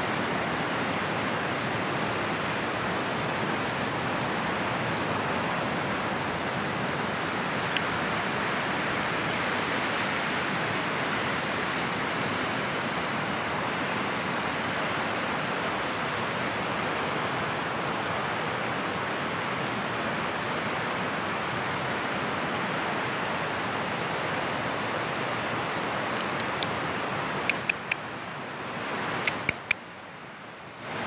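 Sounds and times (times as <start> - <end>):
sharp ticks: 27.5 - 28.0, 29.2 - 29.8.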